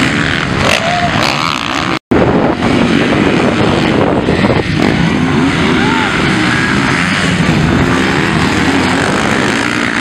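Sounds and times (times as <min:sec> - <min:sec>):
dirt bike engines revving: 0:00.0 - 0:10.0.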